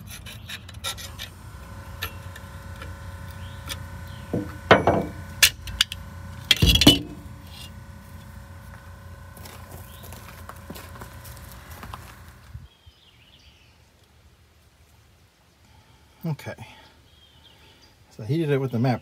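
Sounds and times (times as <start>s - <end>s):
metal tools scraping metal: 0.0s - 1.4s.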